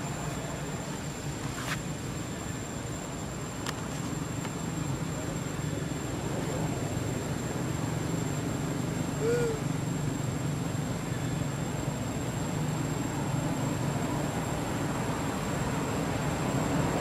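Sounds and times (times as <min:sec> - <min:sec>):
monkey cooing: 0:09.2 - 0:09.7.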